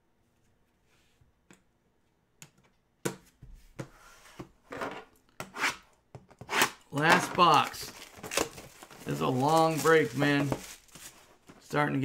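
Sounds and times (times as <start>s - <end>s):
scraping and rustling: 7.8s - 11.7s.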